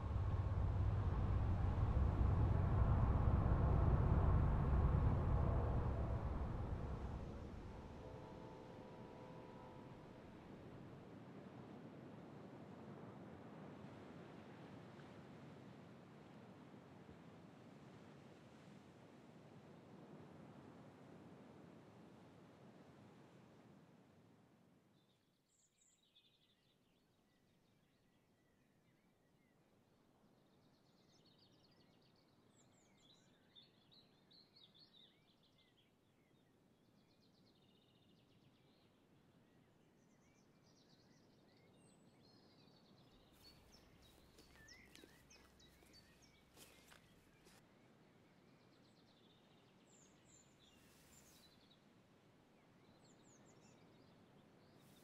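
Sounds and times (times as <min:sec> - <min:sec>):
small birds chirping: 0:40.4 - 0:47.6.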